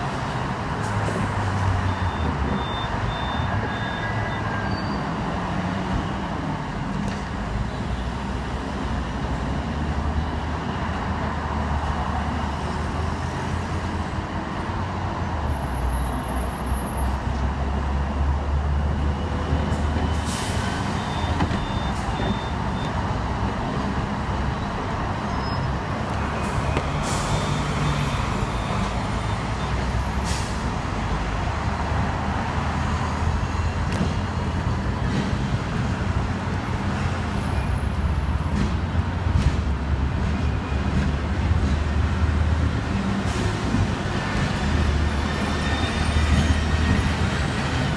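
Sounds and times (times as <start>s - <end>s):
road traffic: 0.0s - 47.9s
tram motors and wheels droning: 30.7s - 47.9s.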